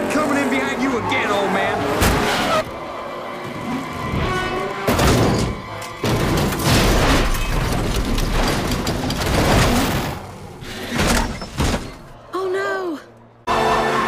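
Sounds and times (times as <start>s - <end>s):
car crashing and tumbling: 4.1s - 12.2s.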